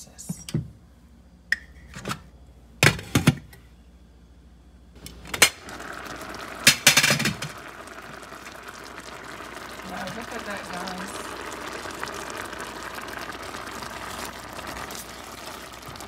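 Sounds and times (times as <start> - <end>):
sauce simmering and bubbling: 5.0 - 16.0.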